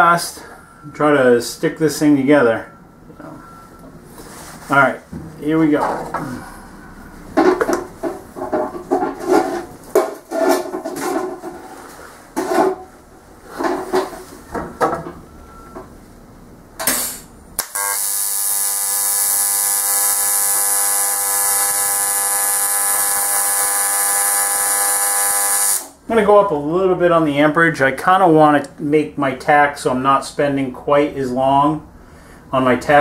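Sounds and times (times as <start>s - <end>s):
knocks and rustles: 5.1s - 6.3s, 7.3s - 15.9s
welding arc buzzing: 16.8s - 26.0s.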